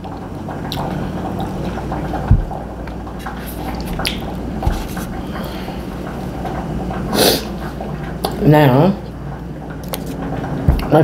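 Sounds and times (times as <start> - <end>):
liquid bubbling: 0.0 - 11.0
low thumps: 2.1 - 2.8, 3.9 - 5.3, 10.6 - 10.9.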